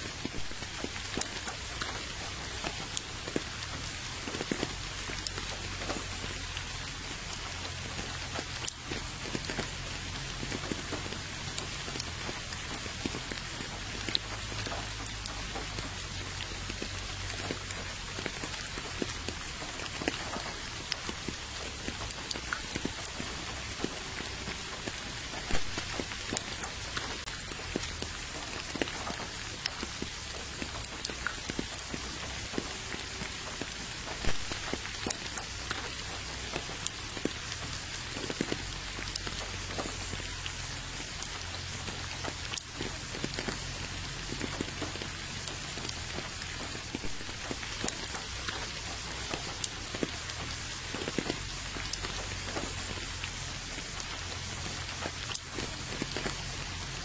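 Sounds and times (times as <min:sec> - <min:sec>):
rain falling on puddle: 0:00.0 - 0:57.0.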